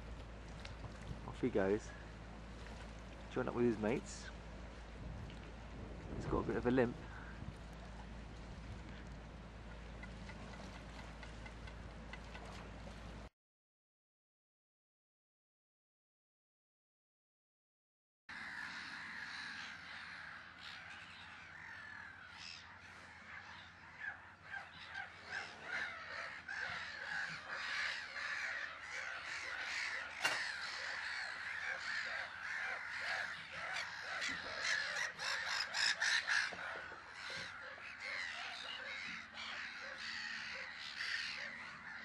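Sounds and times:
gull colony calling: 18.3 - 42.0.

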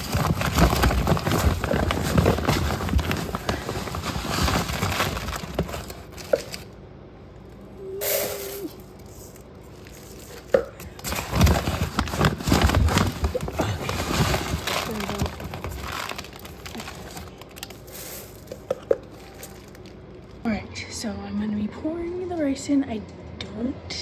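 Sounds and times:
plastic bag crinkling: 0.0 - 6.8, 8.8 - 20.5.

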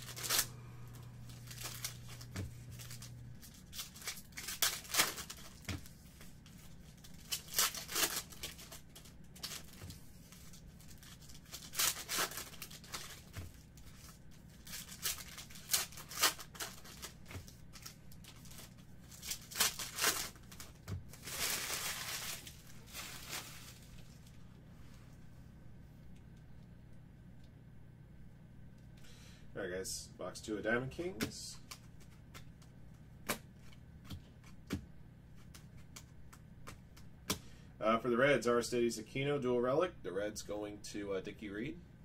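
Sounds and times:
foil crinkling: 0.0 - 24.4
foil wrappers ripping: 0.0 - 24.4.

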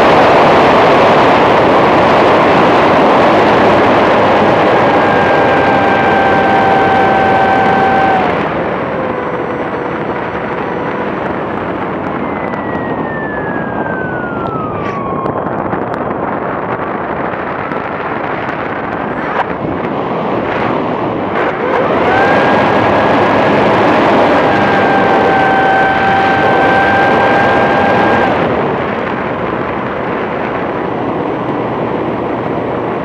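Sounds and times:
wind rushing: 0.0 - 32.2
model plane motor whine: 2.6 - 15.6, 21.5 - 28.6.

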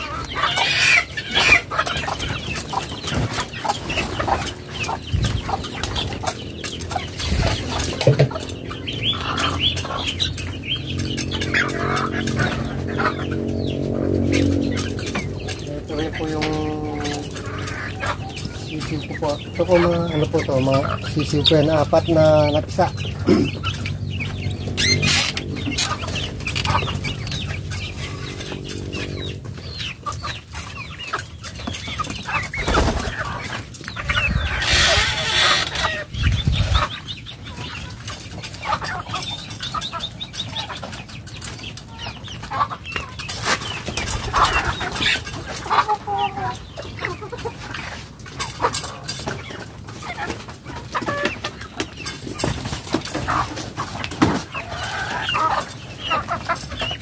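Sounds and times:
chickens clucking: 0.0 - 57.0
low hum: 23.0 - 30.0.

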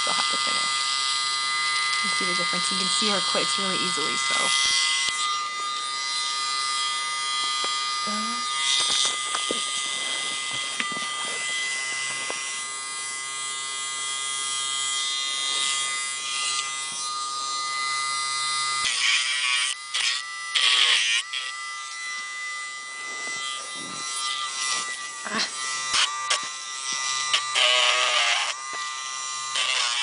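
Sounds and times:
rotary tool whining: 0.0 - 30.0
gritty grinding of toenails: 8.6 - 12.4.

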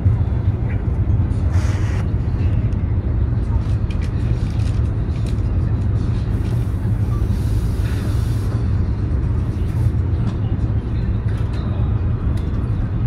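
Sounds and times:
train carriage rumble: 0.0 - 13.0
hiss: 7.3 - 8.6.

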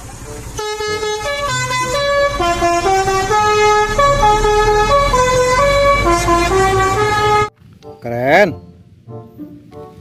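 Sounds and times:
low engine rumble: 0.0 - 7.5
bus horn playing a tune: 0.2 - 7.6.

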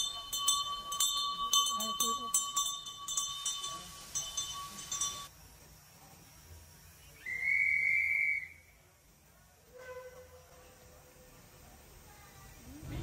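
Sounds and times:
ringing bell-like tones: 0.0 - 5.4
high whistle blast: 7.2 - 8.7.

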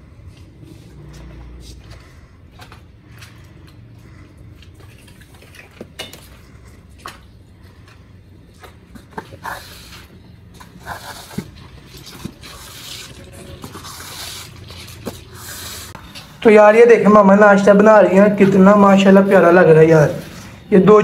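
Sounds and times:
squeegee scraping wet floor: 0.5 - 16.4.

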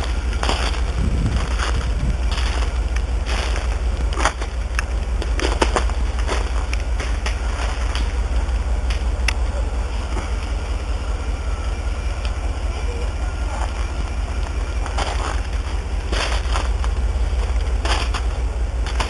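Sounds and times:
footsteps crunching on ice: 0.0 - 9.1, 13.6 - 19.0
steady low rumble: 0.0 - 19.0.

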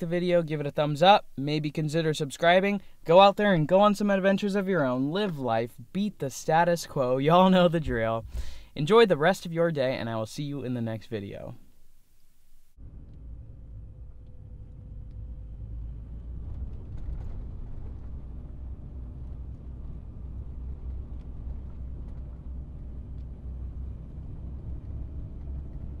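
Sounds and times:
truck engine and road noise: 12.8 - 26.0.

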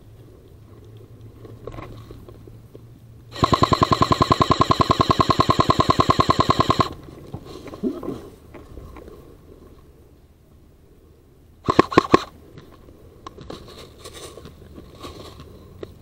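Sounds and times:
airsoft rifle full-auto burst: 3.3 - 7.0, 11.6 - 12.3.

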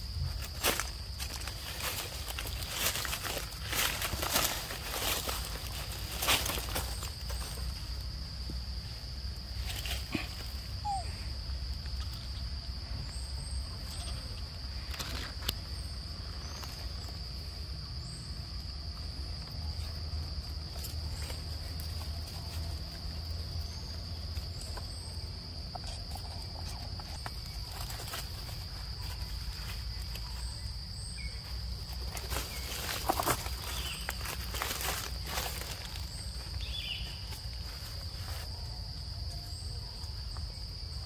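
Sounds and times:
dry leaves rustling: 0.0 - 11.0, 19.4 - 39.2
insects droning: 0.0 - 41.0.

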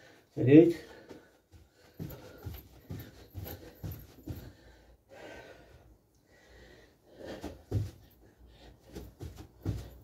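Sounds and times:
man breathing heavily: 0.0 - 10.0
thuds on carpeted floor: 1.9 - 4.6, 7.4 - 8.2, 8.9 - 10.0.

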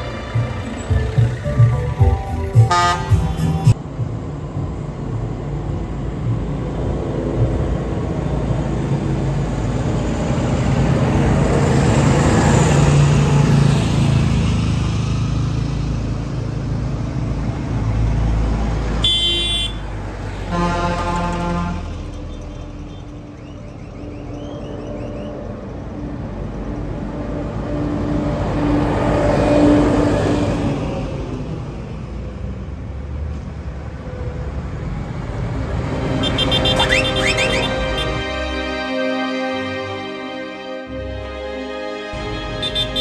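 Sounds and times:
music playing: 0.0 - 4.8, 35.8 - 43.0
horn blast: 2.5 - 3.8, 20.4 - 23.1, 35.9 - 43.0.

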